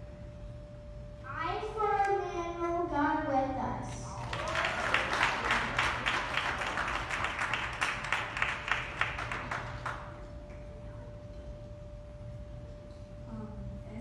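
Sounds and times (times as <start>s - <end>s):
audience clapping: 4.0s - 10.7s.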